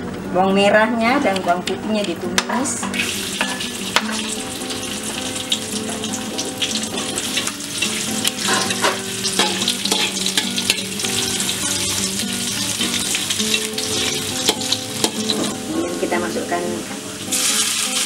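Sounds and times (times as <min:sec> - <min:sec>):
shallots sizzling in oil: 0:01.9 - 0:18.0
metal spatula scraping wok: 0:05.9 - 0:15.6.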